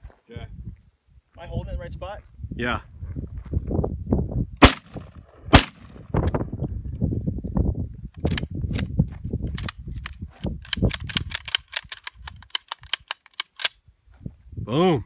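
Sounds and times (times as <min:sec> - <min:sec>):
rifle action metallic clicks: 0:08.2 - 0:08.9, 0:09.5 - 0:13.8.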